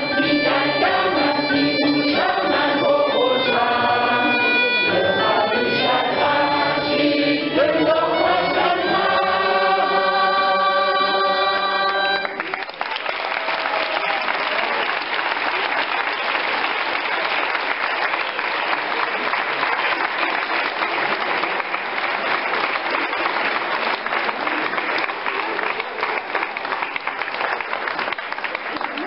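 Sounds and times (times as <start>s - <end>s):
choir singing chord: 0.0s - 12.4s
audience applauding: 12.2s - 29.0s.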